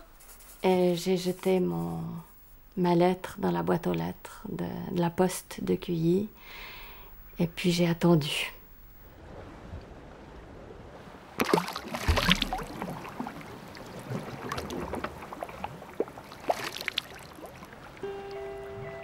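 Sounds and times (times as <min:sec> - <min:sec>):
water sloshing and splashing: 0:08.8 - 0:19.0
glass bottle splashing into water: 0:11.4 - 0:13.3.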